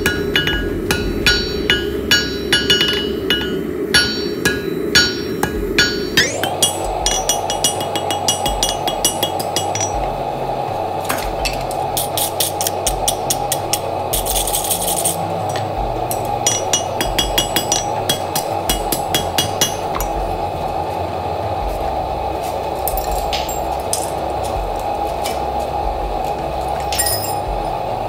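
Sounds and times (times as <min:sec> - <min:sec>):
hammer striking steel on anvil: 0:00.0 - 0:10.3, 0:11.1 - 0:20.4, 0:22.9 - 0:24.2, 0:26.9 - 0:27.5
steady rushing noise: 0:00.0 - 0:28.0.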